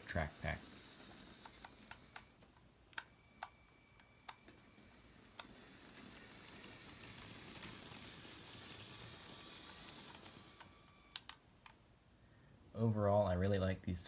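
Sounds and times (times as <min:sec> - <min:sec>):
toy train running hiss: 0:00.0 - 0:02.4, 0:03.3 - 0:11.3
toy train wheels clicking: 0:00.0 - 0:11.4.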